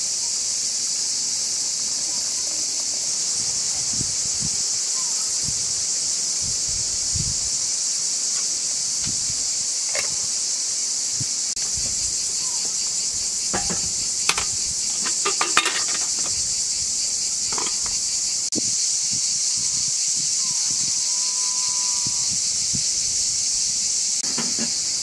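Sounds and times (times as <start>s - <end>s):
high-pitched insect chorus: 0.0s - 25.0s
metal kettle clinks: 9.9s - 10.2s, 13.6s - 16.4s, 17.5s - 17.9s.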